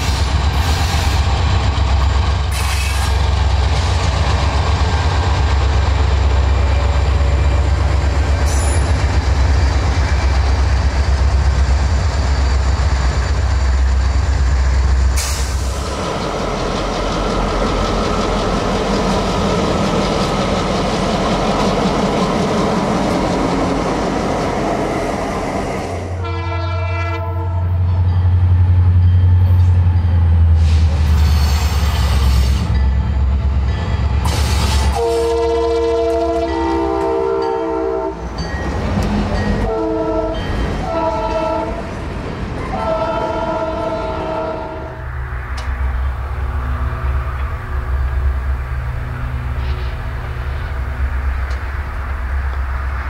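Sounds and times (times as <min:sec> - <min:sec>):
diesel locomotive engine rumble: 0:00.0 - 0:53.0
passenger train rolling past: 0:00.0 - 0:53.0
train horn blasts: 0:26.2 - 0:27.8, 0:34.8 - 0:38.2, 0:39.6 - 0:41.9, 0:42.7 - 0:45.0.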